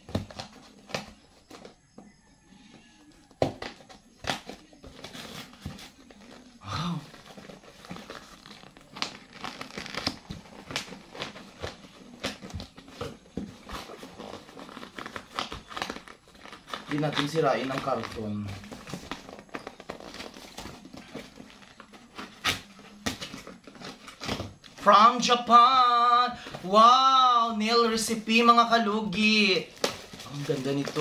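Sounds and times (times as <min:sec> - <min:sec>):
tape peeling off cardboard box: 0:07.3 - 0:12.9.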